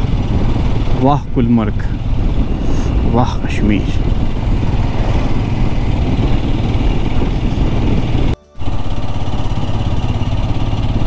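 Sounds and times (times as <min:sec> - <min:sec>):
wind noise: 0:00.0 - 0:08.7
motorcycle engine running: 0:00.0 - 0:11.0.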